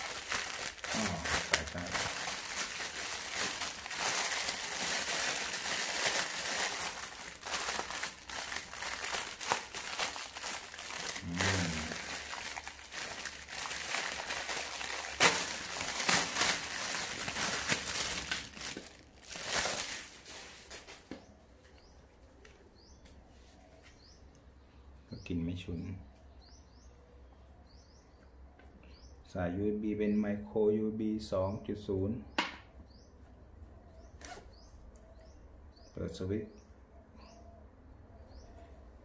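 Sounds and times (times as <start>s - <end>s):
plastic bag crinkling: 0.0s - 21.1s.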